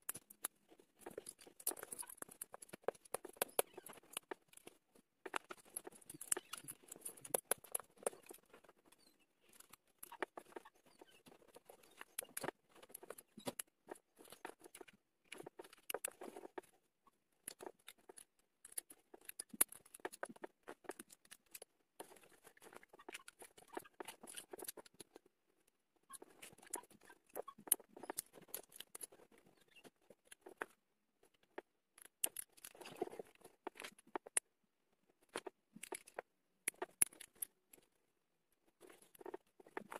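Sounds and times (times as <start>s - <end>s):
plastic bricks clicking together: 0.0s - 11.2s, 35.2s - 37.9s.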